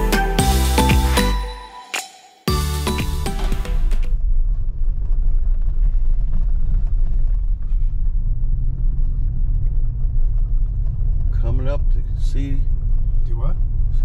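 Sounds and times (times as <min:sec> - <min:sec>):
vehicle road rumble on dirt: 0:03.1 - 0:14.0.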